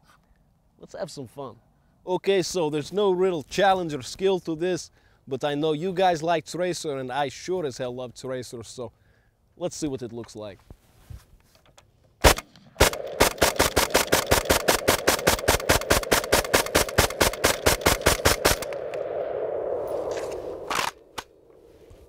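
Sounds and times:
rifle gunshots: 12.2 - 21.4
lingering rumble: 14.4 - 22.0.

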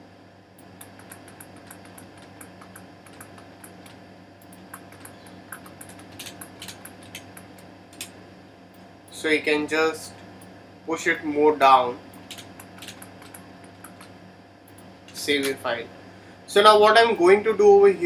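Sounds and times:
faint steady hum: 0.0 - 18.0
computer mouse and keyboard clicking: 0.6 - 8.1, 12.2 - 15.6.

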